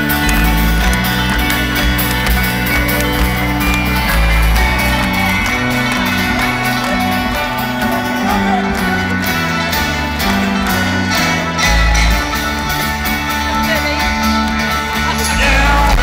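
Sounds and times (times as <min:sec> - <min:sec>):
keyboard: 0:00.0 - 0:16.0
steady drum beat: 0:00.0 - 0:16.0
upright bass notes: 0:00.0 - 0:16.0.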